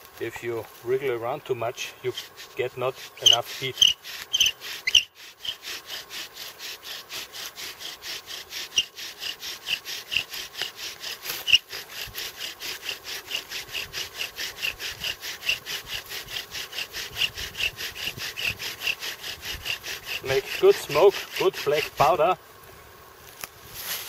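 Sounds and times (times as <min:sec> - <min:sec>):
bow drill spindle rasping: 0:01.8 - 0:22.3
bow drill squeaks: 0:02.1 - 0:06.0, 0:08.6 - 0:11.7, 0:16.7 - 0:22.2.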